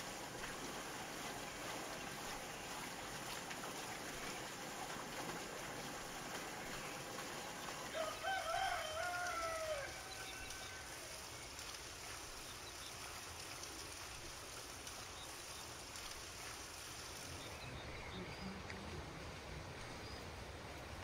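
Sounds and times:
farmyard ambience hiss: 0.0s - 21.0s
rooster crowing: 7.9s - 11.0s.

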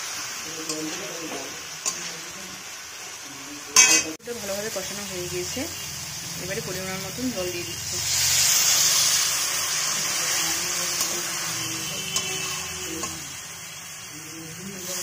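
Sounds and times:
water hissing in hot oil: 0.0s - 15.0s
metal spoon tapping a pan: 3.8s - 4.2s, 12.1s - 13.4s.

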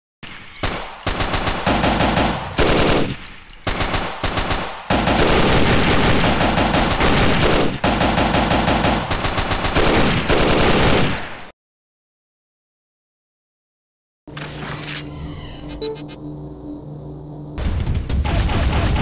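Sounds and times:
automatic gunfire: 0.6s - 11.4s.

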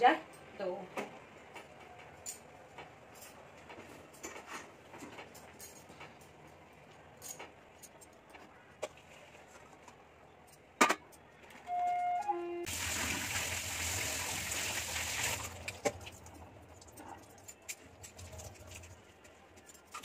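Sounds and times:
faint cookware clicks and knocks: 0.3s - 11.6s.

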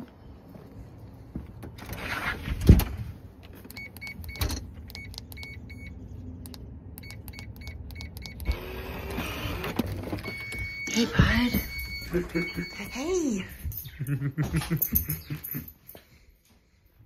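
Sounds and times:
keys clicking and jingling: 13.4s - 16.1s.

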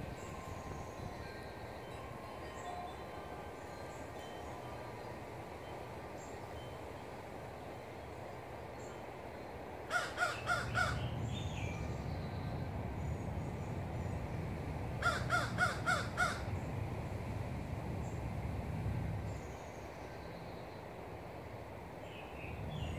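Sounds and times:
crow cawing: 9.9s - 11.0s, 15.0s - 16.5s.

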